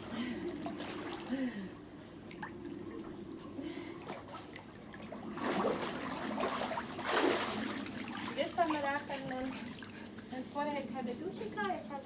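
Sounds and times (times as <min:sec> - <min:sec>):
pool water lapping: 0:00.0 - 0:12.0
splashing while wading: 0:04.0 - 0:10.1.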